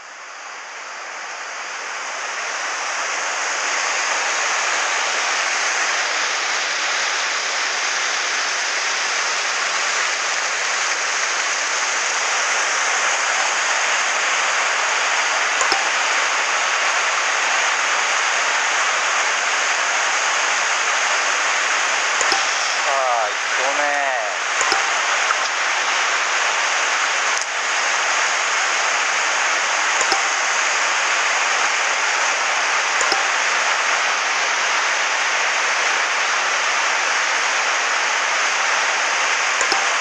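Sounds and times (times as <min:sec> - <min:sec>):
faint click: 0:15.6 - 0:16.1, 0:22.2 - 0:23.0, 0:33.0 - 0:33.6, 0:39.6 - 0:40.0.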